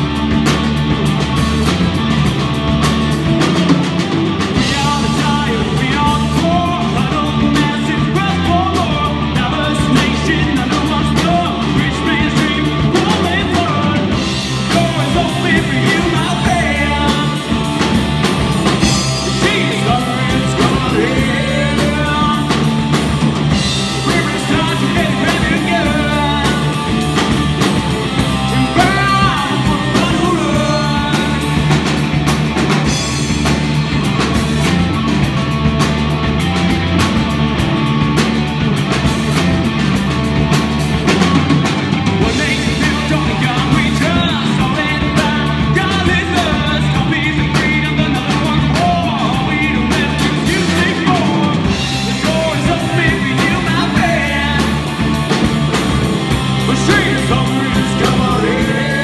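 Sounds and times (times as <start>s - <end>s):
distorted electric guitars: 0.0s - 59.0s
drum kit: 0.0s - 59.0s
man singing into a microphone: 4.6s - 18.0s, 18.8s - 27.3s, 28.5s - 31.8s, 42.2s - 55.1s, 56.6s - 59.0s.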